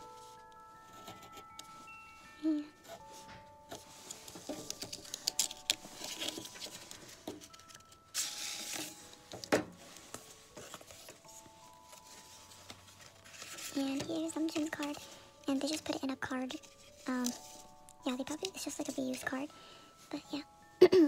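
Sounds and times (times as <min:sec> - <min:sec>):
paper rustling: 0:03.1 - 0:19.4
knife slitting paper envelope: 0:04.2 - 0:09.0.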